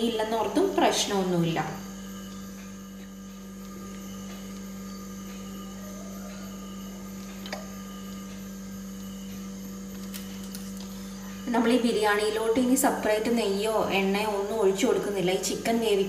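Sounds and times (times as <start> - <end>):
low hum with higher tones: 0.0 - 16.0.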